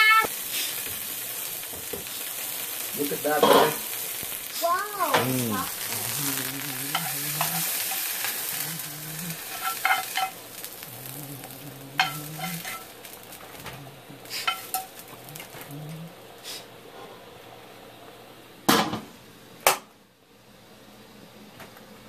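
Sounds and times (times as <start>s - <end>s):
onions sizzling in hot oil: 0.0s - 16.8s
spatula scraping pan: 5.1s - 13.0s, 14.2s - 15.7s.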